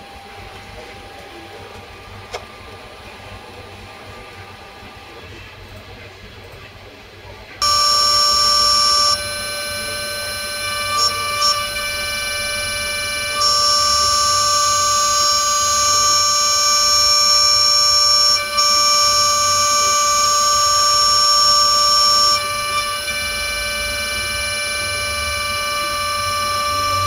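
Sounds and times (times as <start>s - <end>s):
higher-pitched whine: 7.6s - 27.0s
spindle whining: 7.6s - 27.0s.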